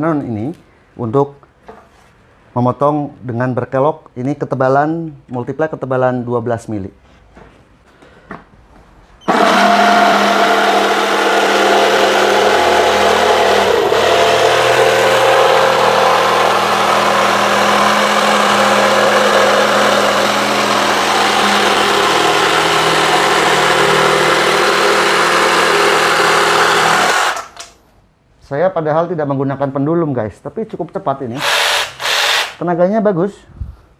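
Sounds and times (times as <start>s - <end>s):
jigsaw cutting plywood: 9.3s - 27.7s, 31.4s - 32.6s.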